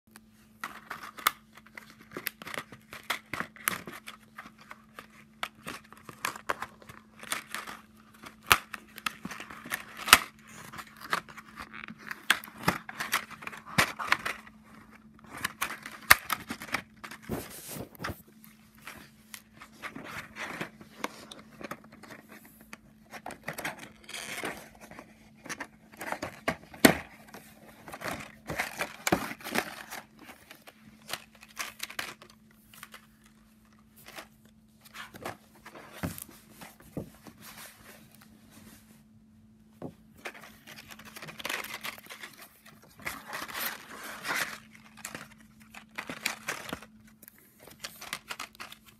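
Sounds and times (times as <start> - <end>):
plastic packet crinkling: 40.4 - 48.9.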